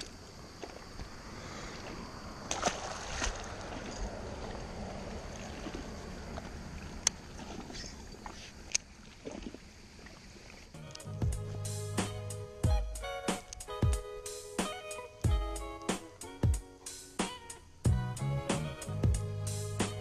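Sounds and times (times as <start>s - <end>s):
water sloshing and splashing: 0.0s - 10.8s.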